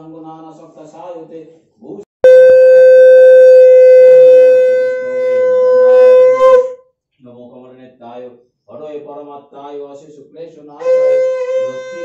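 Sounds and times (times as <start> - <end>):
conch shell blown: 2.2 - 6.8, 10.8 - 12.0.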